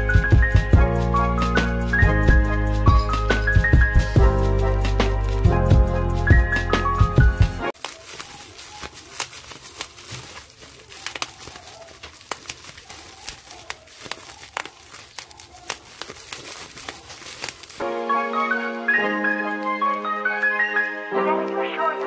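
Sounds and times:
background music: 0:00.0 - 0:07.7, 0:17.8 - 0:22.0
bubble wrap popping: 0:07.8 - 0:17.9.

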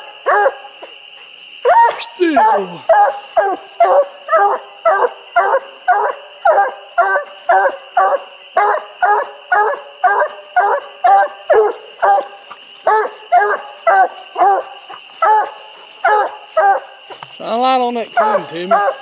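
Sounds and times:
dog barking: 0:00.2 - 0:00.7, 0:01.7 - 0:16.9, 0:18.2 - 0:19.0.

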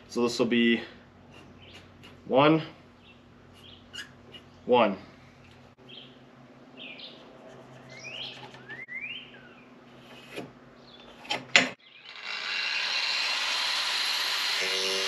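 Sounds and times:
songbirds chirping: 0:00.1 - 0:12.2.

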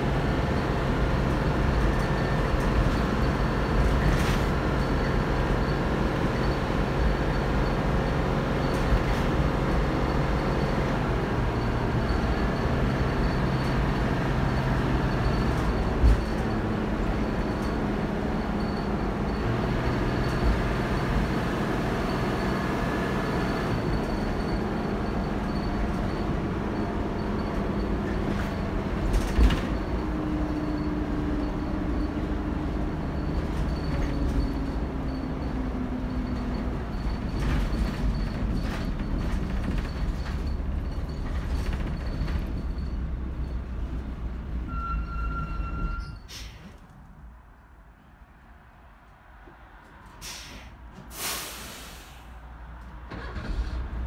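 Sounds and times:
bus diesel engine: 0:00.0 - 0:54.0
road noise: 0:00.0 - 0:54.0.

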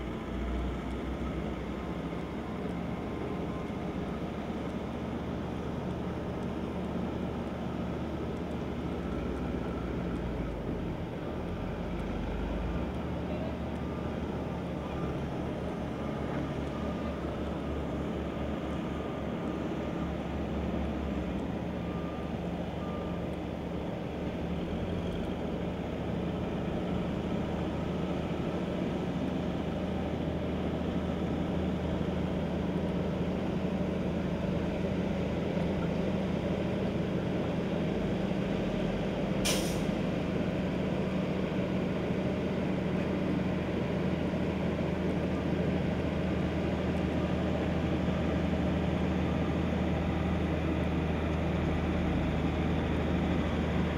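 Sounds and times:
diesel engine running: 0:00.0 - 0:53.9
sharp hiss of air: 0:39.4 - 0:40.0.

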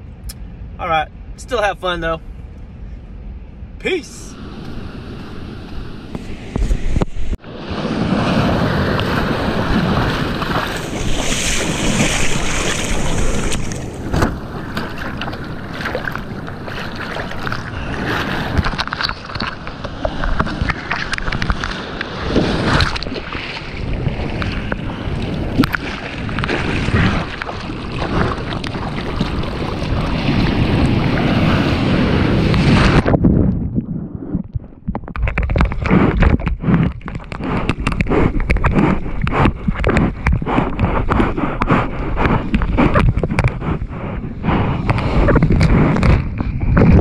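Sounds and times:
breaking waves rushing: 0:03.8 - 0:33.2
wind buffeting microphone: 0:04.3 - 0:47.0
short water splashes: 0:08.0 - 0:31.7.

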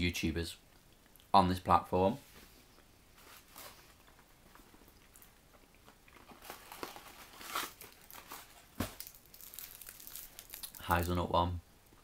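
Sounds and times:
chocolate wrapper crinkling: 0:06.0 - 0:11.2.

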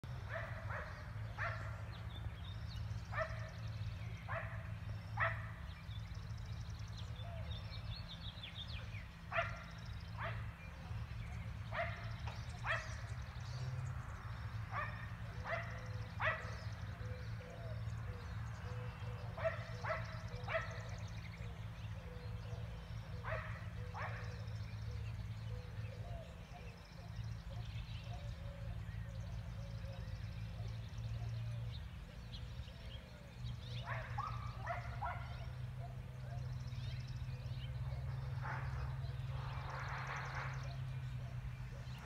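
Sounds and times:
dogs barking: 0:00.2 - 0:02.0, 0:03.0 - 0:05.7, 0:08.8 - 0:10.6, 0:11.6 - 0:13.3, 0:14.6 - 0:17.1, 0:19.2 - 0:21.6, 0:22.2 - 0:25.1, 0:33.6 - 0:42.0.

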